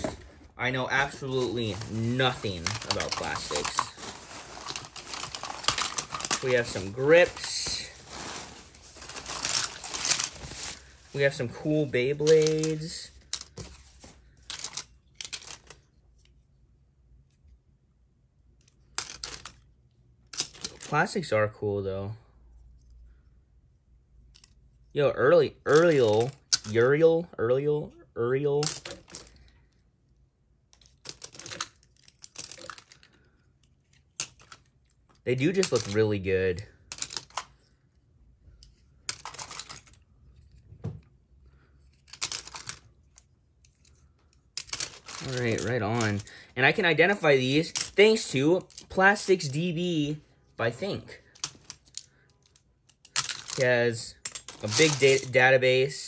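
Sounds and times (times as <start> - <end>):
plastic toy rustles and clicks: 0.0 - 16.4, 18.6 - 21.1, 25.6 - 26.9, 28.5 - 29.8, 30.6 - 55.5
plastic tops clicking and clattering: 42.0 - 46.3.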